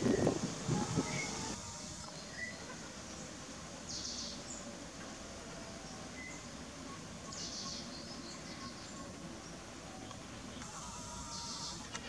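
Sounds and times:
high rasping calls: 0.0 - 2.9, 10.6 - 12.0
steady background hiss: 0.0 - 12.0.

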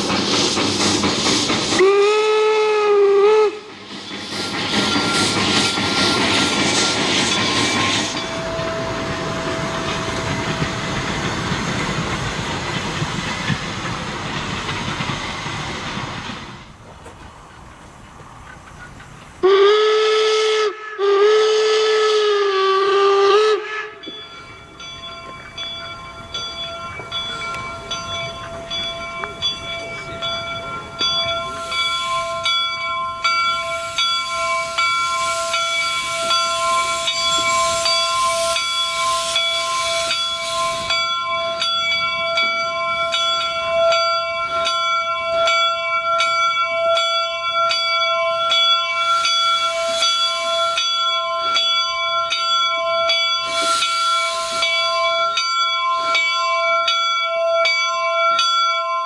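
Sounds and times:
hissing steam: 0.0 - 45.6, 48.4 - 57.0
steam whistle blasts: 1.7 - 3.7, 19.4 - 24.1, 33.6 - 41.0, 48.4 - 51.8, 52.9 - 55.4
locomotive bell ringing: 3.9 - 15.1, 23.7 - 59.0.

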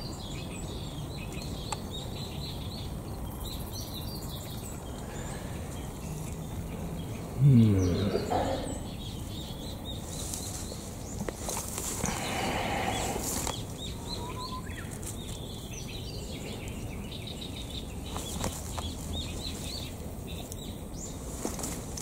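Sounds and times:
small birds chirping: 0.0 - 22.0
footsteps rustling through undergrowth: 10.0 - 13.8, 21.0 - 22.0.

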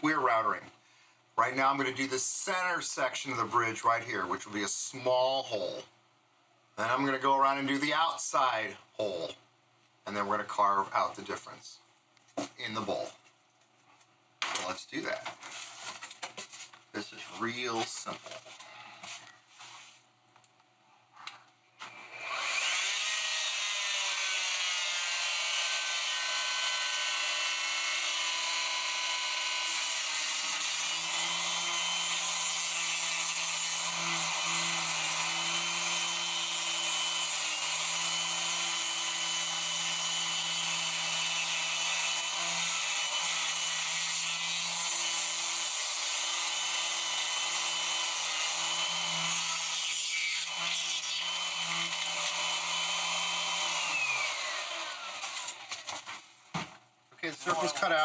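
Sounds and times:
electric router whine: 21.8 - 55.9.

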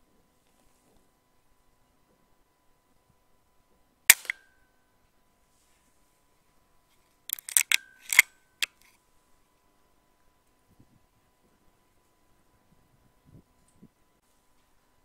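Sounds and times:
air rifle shot: 4.1 - 4.4
rifle lever clicks: 4.1 - 4.4, 7.3 - 8.9.

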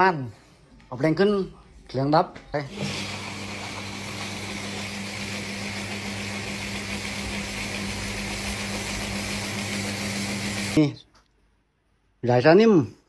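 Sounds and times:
electric motor humming: 2.7 - 10.8.

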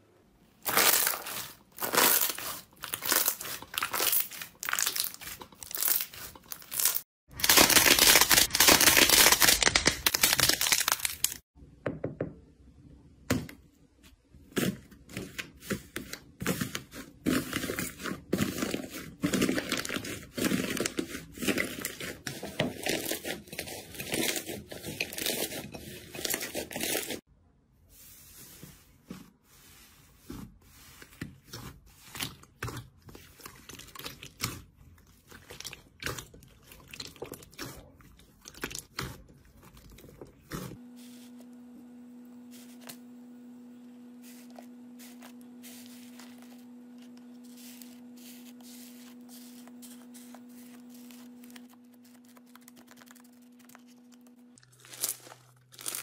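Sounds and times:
crunchy slime crackling: 0.6 - 11.4, 44.4 - 56.0.

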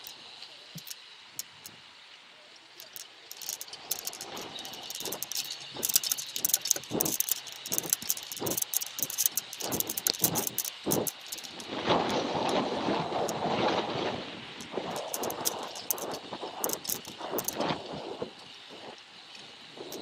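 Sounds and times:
bike rattling and clicking: 0.8 - 1.8, 2.7 - 13.8, 14.6 - 20.0
muffled wind rush: 3.8 - 19.0.

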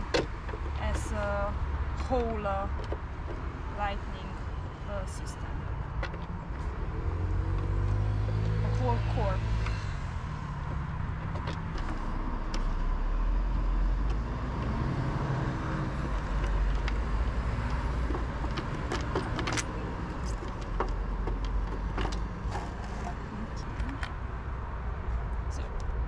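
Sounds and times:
vehicle engine rumbling: 0.0 - 26.0.

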